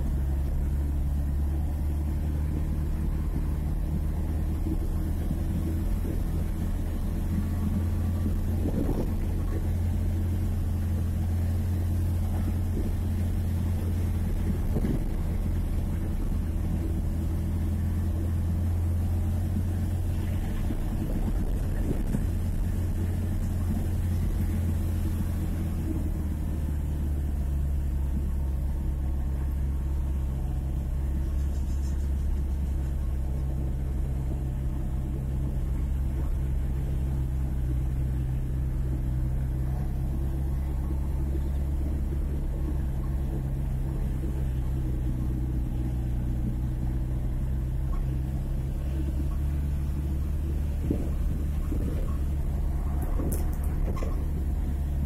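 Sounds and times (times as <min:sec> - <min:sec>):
road noise: 0:00.0 - 0:55.0
vehicle engine running: 0:00.0 - 0:55.0.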